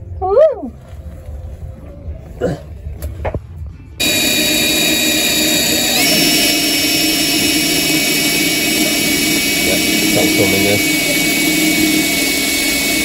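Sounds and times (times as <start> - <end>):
electric drill boring through metal: 4.0 - 13.0.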